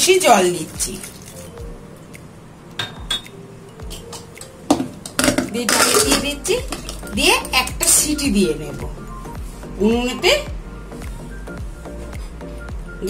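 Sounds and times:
pot clattering and scraping: 3.9 - 7.0.

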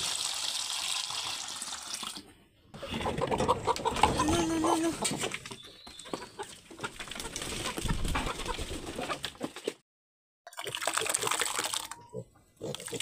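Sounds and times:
hens clucking: 2.8 - 9.6
hens scuffling: 2.8 - 9.7.

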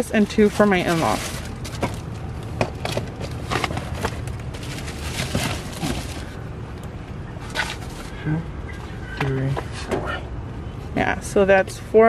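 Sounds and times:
low background rumble: 0.0 - 12.0
packs knocking and rustling: 0.8 - 6.4.

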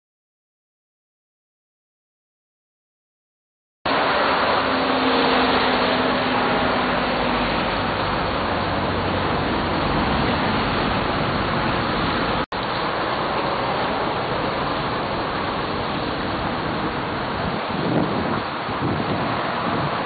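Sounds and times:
traffic hiss on wet road: 3.9 - 20.0.

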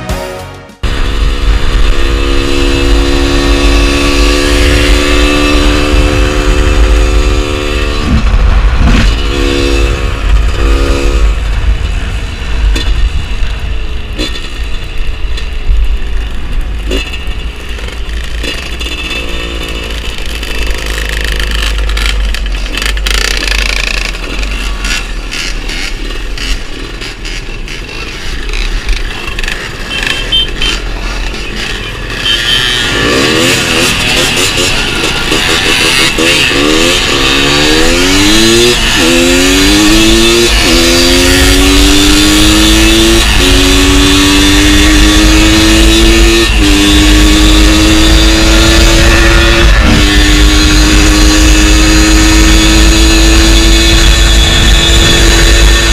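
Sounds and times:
wind rumble on microphone: 0.8 - 16.7, 48.0 - 55.9
motorcycle engine running: 0.8 - 55.9.

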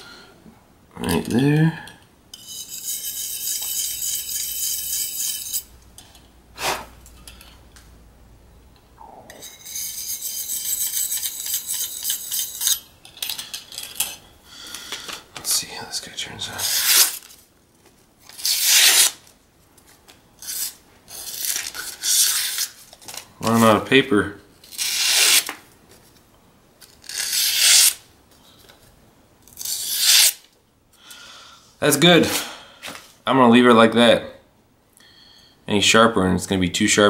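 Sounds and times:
knife rasping on sharpening hone: 2.3 - 5.7, 9.3 - 12.9
knife slicing paper: 16.6 - 17.3, 18.3 - 19.2, 24.7 - 25.5, 27.0 - 28.0, 29.6 - 30.4.

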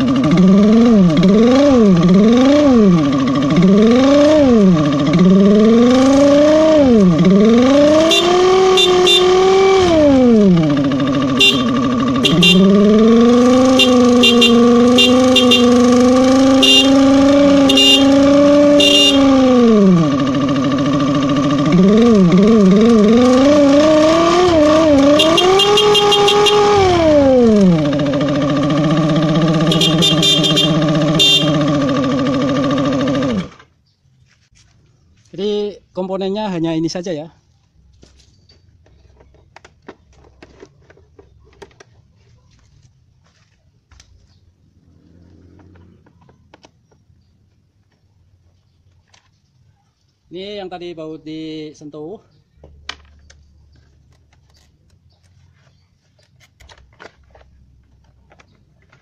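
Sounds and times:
scooter engine revving: 0.0 - 33.8, 44.6 - 47.3.

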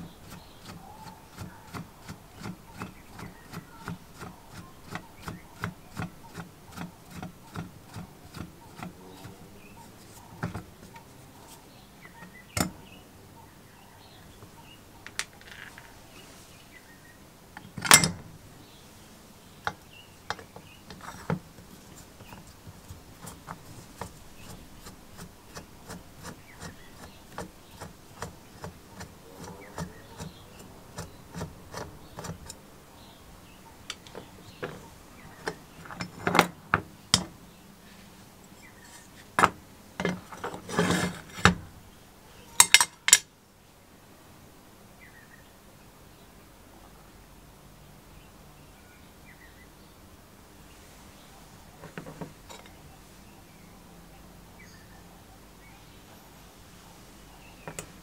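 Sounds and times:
scraping rub: 0.0 - 12.8, 19.7 - 32.6, 37.8 - 39.4, 40.0 - 41.7
metal parts clicking and clinking: 17.6 - 18.2, 42.6 - 43.3.

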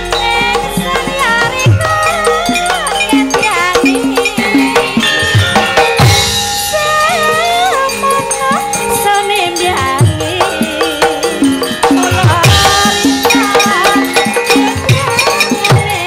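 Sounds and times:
high ornamented melody line: 0.0 - 16.0
sustained metallophone tones: 0.0 - 16.0.

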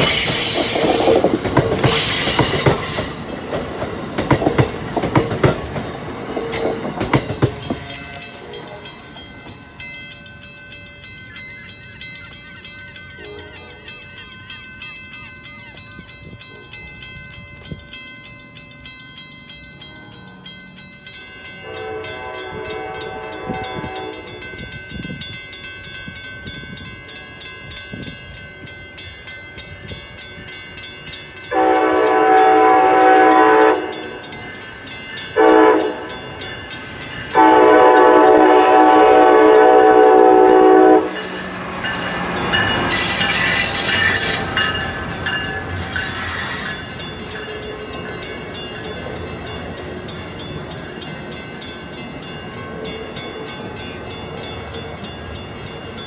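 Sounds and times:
train wheels clattering over rails: 0.0 - 9.7
train horn blasts: 7.8 - 9.0, 13.2 - 13.8, 21.6 - 24.4, 31.5 - 34.3, 35.3 - 36.2, 37.3 - 41.7.

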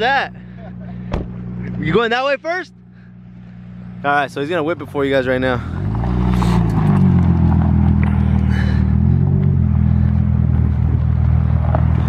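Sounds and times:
car engine revving hard: 5.3 - 11.0.

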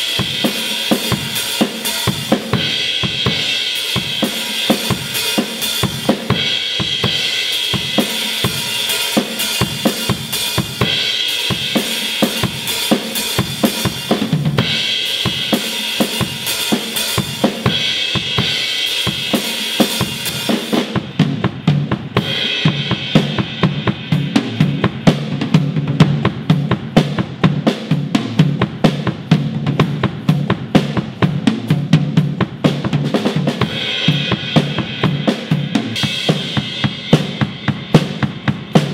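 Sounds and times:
cymbals: 0.0 - 38.9
drums played with sticks: 0.0 - 38.9.

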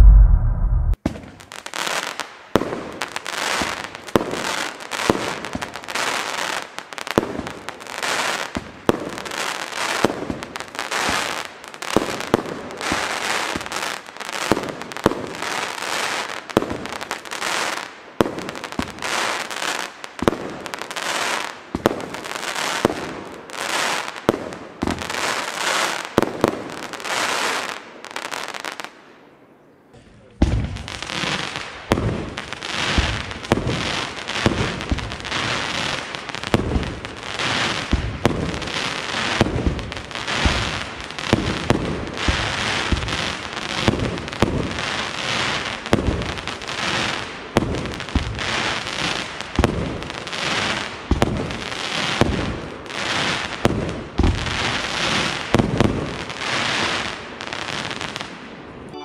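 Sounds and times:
firework launch thumps: 0.0 - 1.3
loud firework crackling: 0.0 - 28.9, 30.5 - 58.5.

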